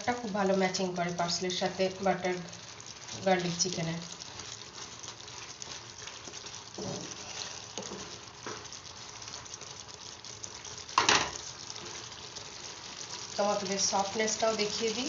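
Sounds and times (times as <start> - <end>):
gravy sizzling in a pan: 0.0 - 15.0.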